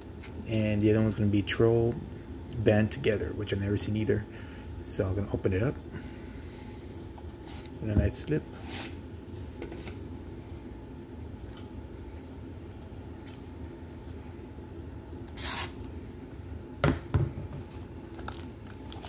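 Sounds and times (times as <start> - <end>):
low steady hum: 0.0 - 19.0
plastic wrap rustling: 17.7 - 19.0.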